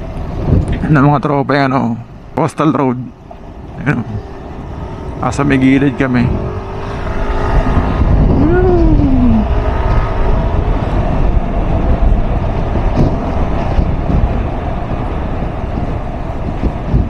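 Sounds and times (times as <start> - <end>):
wind rushing over microphone: 0.0 - 17.0
scooter engine running: 4.2 - 14.4.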